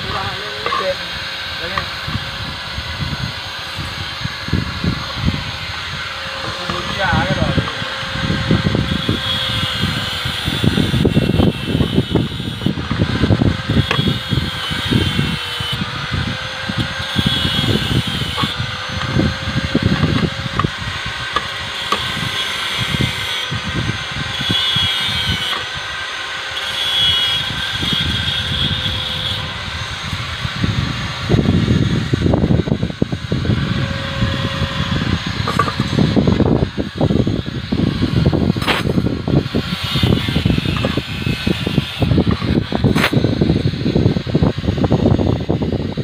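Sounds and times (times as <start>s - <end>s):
wind buffeting microphone: 0.0s - 26.5s, 27.2s - 46.0s.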